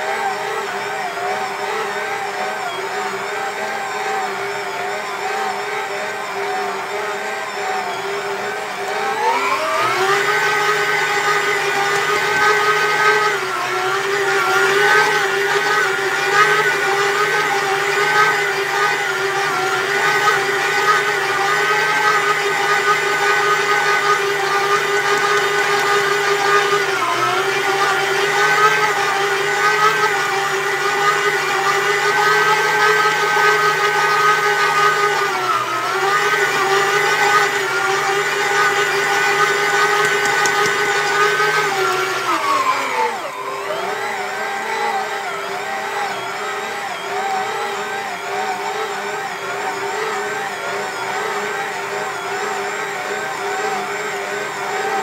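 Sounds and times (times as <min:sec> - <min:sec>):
stand mixer motor whining: 0:00.0 - 0:55.0.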